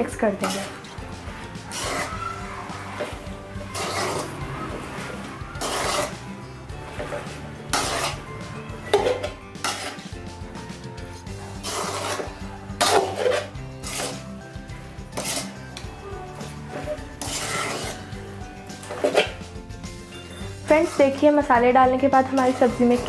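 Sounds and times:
metal spatula scraping metal pan: 0:00.0 - 0:10.2, 0:11.0 - 0:23.0.

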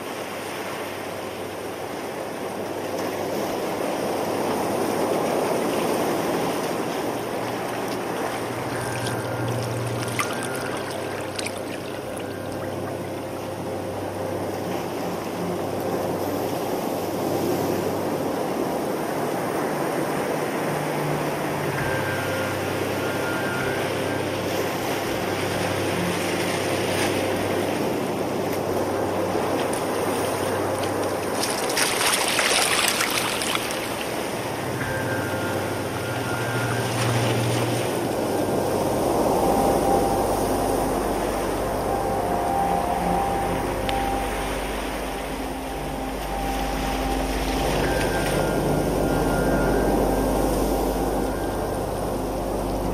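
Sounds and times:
low sustained musical notes: 0:00.0 - 0:52.9
water sloshing around rocks: 0:03.0 - 0:15.1, 0:24.4 - 0:40.0
water splashing surge: 0:05.5 - 0:13.2, 0:29.3 - 0:52.9.

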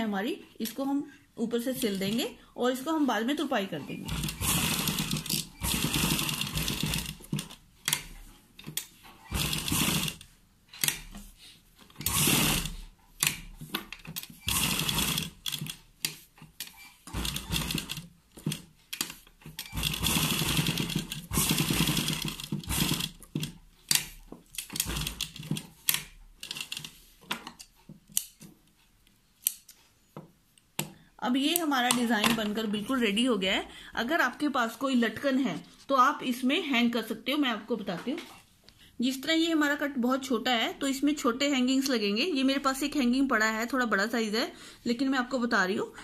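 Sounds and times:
sewing machine stitching: 0:04.0 - 0:11.2, 0:11.9 - 0:15.9, 0:16.6 - 0:27.0.

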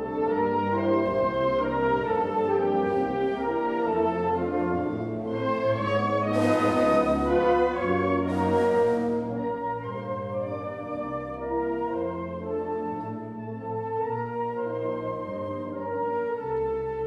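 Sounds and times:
low bass notes: 0:00.0 - 0:11.8
wind band brass and woodwind chords: 0:00.0 - 0:17.0.

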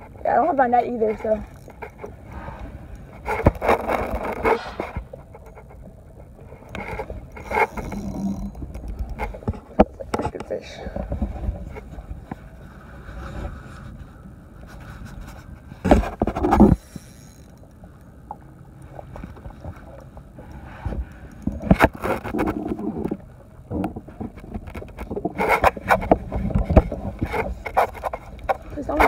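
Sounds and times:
spinning reel being cranked: 0:01.0 - 0:02.1, 0:06.8 - 0:09.2, 0:16.7 - 0:17.7.

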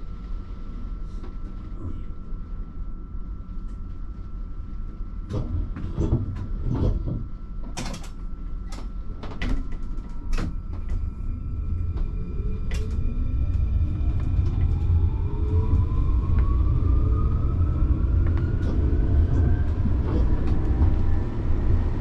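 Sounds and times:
tram rumbling: 0:00.0 - 0:22.0.

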